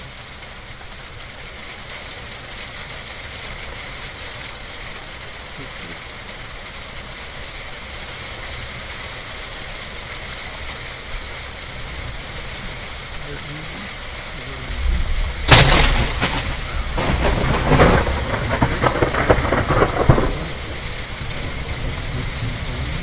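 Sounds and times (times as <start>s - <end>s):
rain falling: 0.0s - 23.0s
low rumble: 14.4s - 23.0s.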